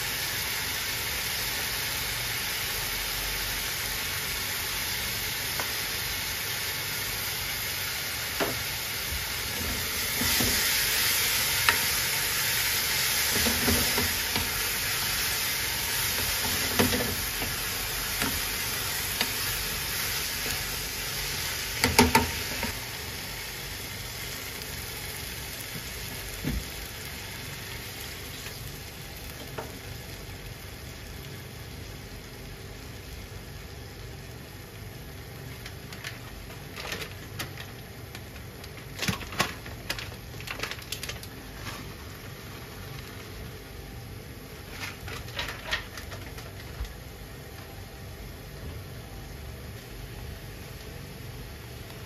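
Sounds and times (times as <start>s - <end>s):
steady hiss of heating pan: 0.0s - 52.0s
broth popping and crackling: 35.4s - 43.6s.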